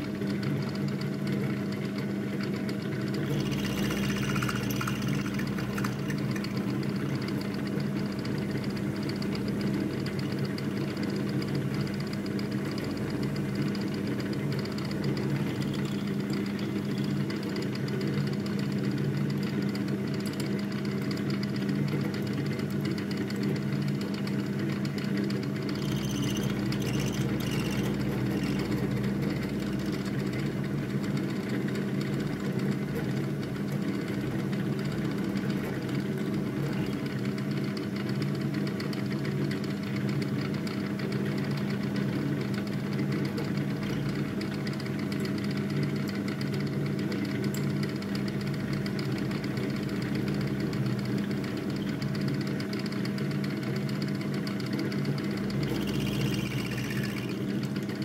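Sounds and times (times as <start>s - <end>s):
milling machine cutting metal: 3.2s - 7.3s, 25.6s - 30.0s, 55.5s - 57.7s.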